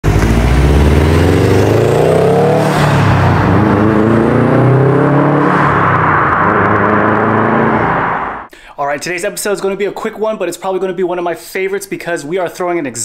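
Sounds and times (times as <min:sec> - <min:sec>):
car engine accelerating: 0:00.0 - 0:08.5.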